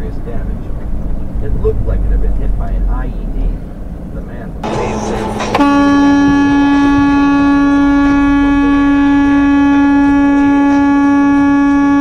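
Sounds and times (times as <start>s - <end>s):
vehicle horn blast: 4.6s - 12.0s.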